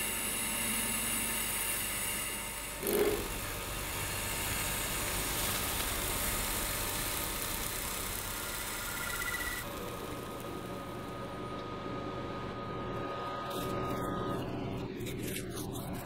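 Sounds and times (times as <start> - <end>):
lathe gouge cutting resin: 0.0 - 10.8.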